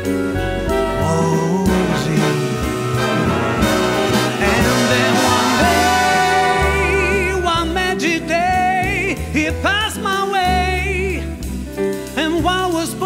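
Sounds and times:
plucked double bass: 0:00.0 - 0:09.9
piano: 0:00.0 - 0:13.0
man singing with vibrato: 0:00.6 - 0:11.2.

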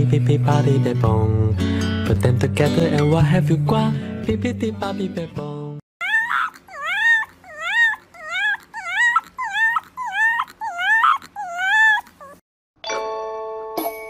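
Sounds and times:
puppy whimpering yips: 0:06.0 - 0:12.4.

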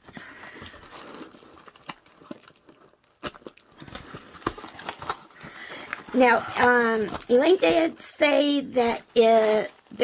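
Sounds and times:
paper rustling and tearing: 0:08.8 - 0:10.0.

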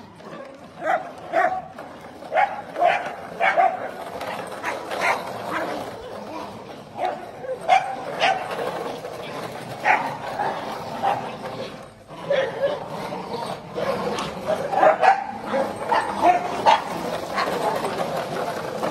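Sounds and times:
small dogs barking: 0:00.8 - 0:01.7, 0:02.3 - 0:04.0, 0:07.0 - 0:08.6, 0:09.8 - 0:11.4, 0:12.2 - 0:17.6.

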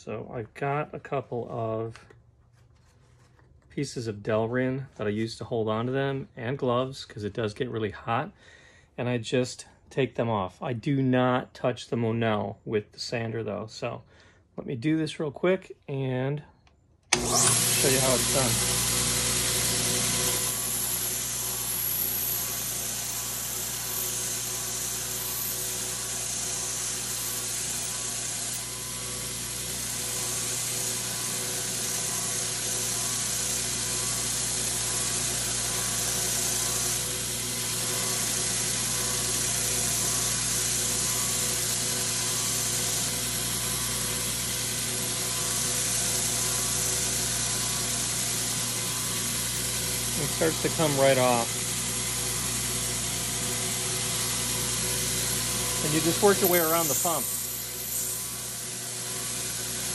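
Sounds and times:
belt sander running: 0:17.1 - 0:59.9
metal grinding hiss: 0:45.4 - 0:51.5, 0:54.7 - 0:59.9.

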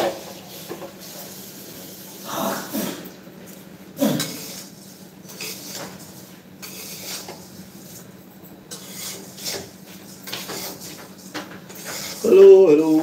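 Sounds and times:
utensils clinking and scraping: 0:08.3 - 0:13.0.

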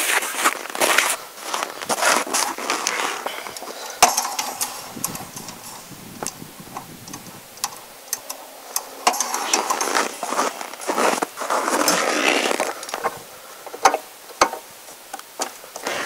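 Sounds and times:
footsteps crunching in snow: 0:00.0 - 0:06.2, 0:09.0 - 0:13.6, 0:15.8 - 0:16.0
sharp clicks and ticks: 0:03.5 - 0:10.2.

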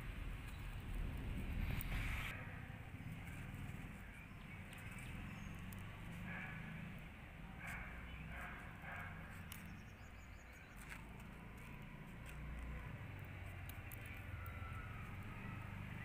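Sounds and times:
steady low rumble: 0:00.0 - 0:05.2.

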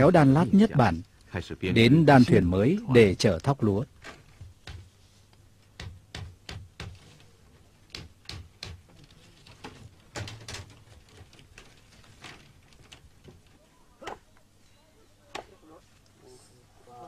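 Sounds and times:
bamboo clicks and knocks: 0:03.4 - 0:14.5.

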